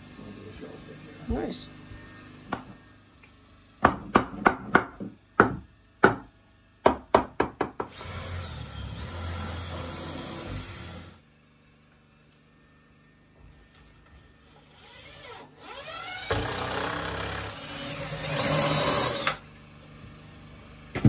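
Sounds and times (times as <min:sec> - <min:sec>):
hammer striking wood: 0:03.8 - 0:08.0
cordless drill running: 0:07.9 - 0:11.2, 0:13.6 - 0:19.5.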